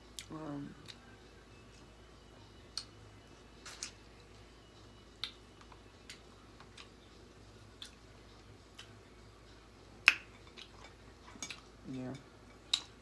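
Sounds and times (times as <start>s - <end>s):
clicks and taps of eating seafood: 10.0s - 10.8s.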